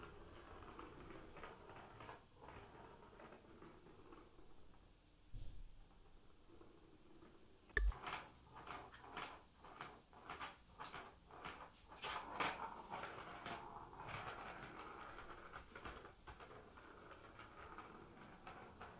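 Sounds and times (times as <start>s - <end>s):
ball rattling in plastic track: 8.0s - 18.9s.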